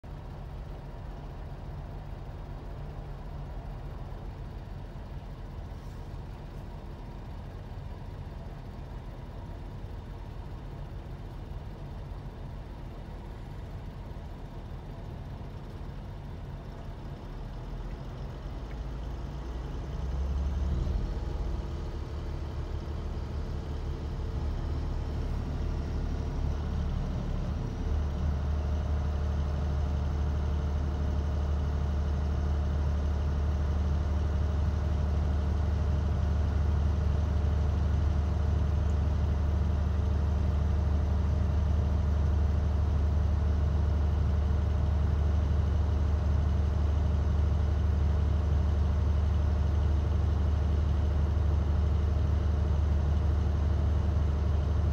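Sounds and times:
heavy engine droning: 13.3 - 31.5.

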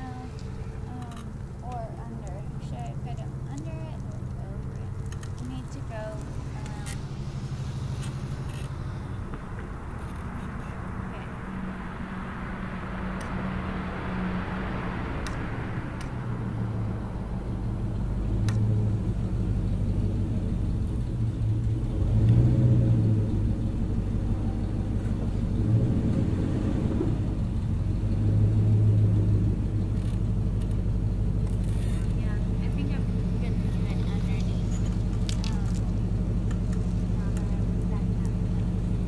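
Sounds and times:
higher rushing noise: 5.8 - 18.2.

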